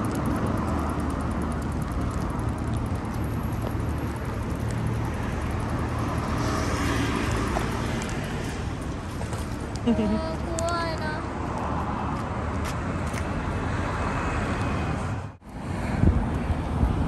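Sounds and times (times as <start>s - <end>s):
cars driving past: 0.0s - 17.0s
vehicle passing close: 0.0s - 17.0s.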